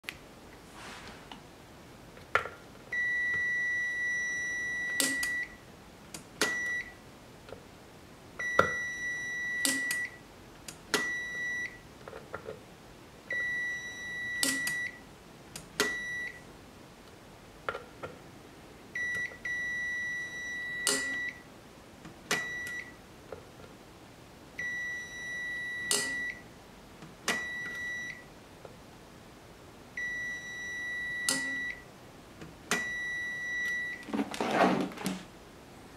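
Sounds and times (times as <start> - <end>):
multimeter beeps: 2.9 - 5.6, 6.4 - 7.0, 8.4 - 10.2, 11.0 - 11.8, 13.3 - 15.0, 15.8 - 16.4, 19.0 - 21.4, 22.3 - 23.0, 24.6 - 26.4, 27.3 - 28.3, 30.0 - 31.9, 32.7 - 34.1.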